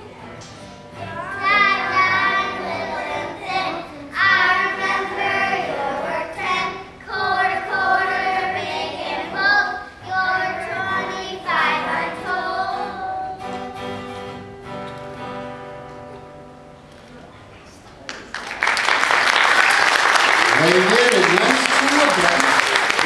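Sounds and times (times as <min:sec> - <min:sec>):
guitar accompaniment: 0:00.0 - 0:17.6
children singing together: 0:00.9 - 0:14.7.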